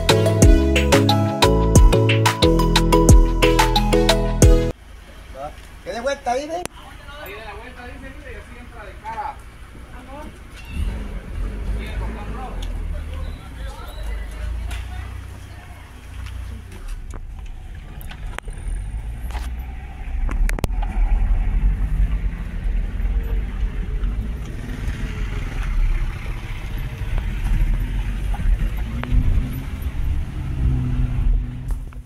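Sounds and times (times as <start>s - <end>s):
car engine and road rumble: 0.0s - 32.0s.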